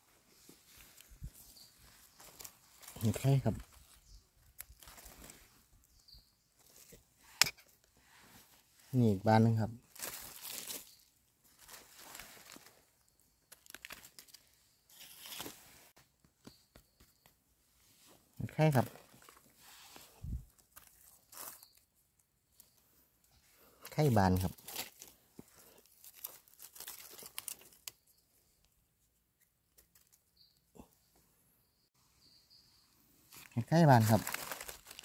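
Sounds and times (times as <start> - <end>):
dry leaves rustling: 0.7 - 5.5, 9.8 - 12.9, 13.5 - 15.8, 24.1 - 27.9, 33.3 - 35.0.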